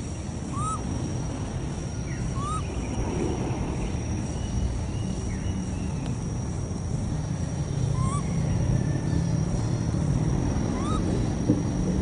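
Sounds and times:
short chirping calls: 0:00.0 - 0:06.2, 0:07.7 - 0:08.7, 0:10.7 - 0:11.2
outdoor background rumble: 0:00.0 - 0:12.0.

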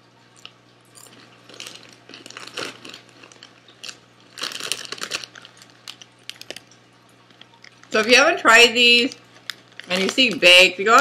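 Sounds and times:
snacks crunched and chewed: 0:00.2 - 0:08.0, 0:09.1 - 0:11.0
hand rummaging in crinkly bag: 0:01.1 - 0:06.6, 0:09.3 - 0:11.0.

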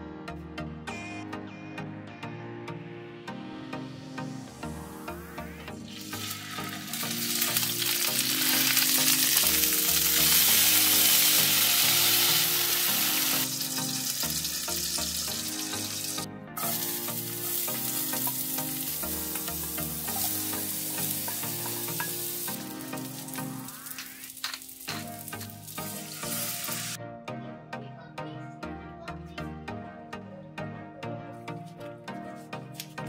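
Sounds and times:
background music: 0:00.0 - 0:33.0
fish sizzling in oil: 0:05.9 - 0:27.0.

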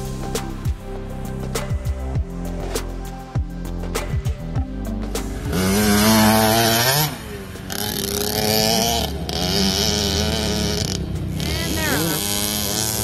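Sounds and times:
dirt bike engine revving: 0:04.0 - 0:13.0.

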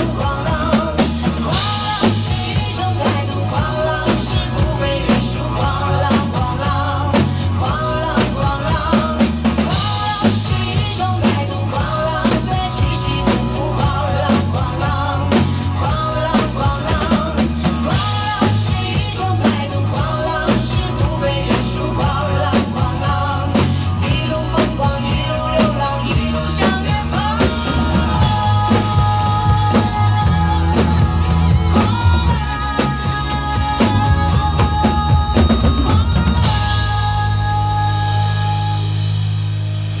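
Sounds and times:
drum kits playing: 0:00.0 - 0:40.0
pop backing track with singing: 0:00.0 - 0:40.0.

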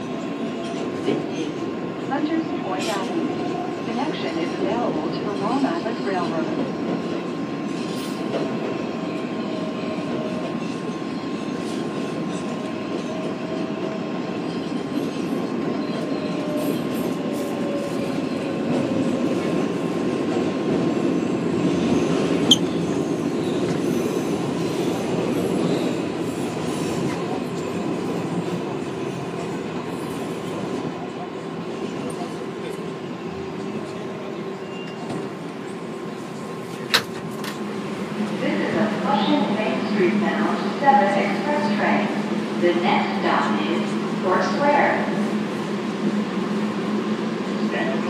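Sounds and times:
subway wheels rumbling on rails: 0:00.0 - 0:48.0
wheel squeals: 0:22.4 - 0:22.9.

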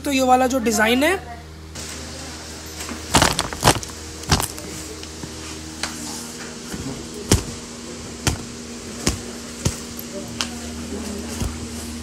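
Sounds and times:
low electrical hum: 0:00.0 - 0:12.0
sharp handling clicks and knocks: 0:03.1 - 0:04.6.

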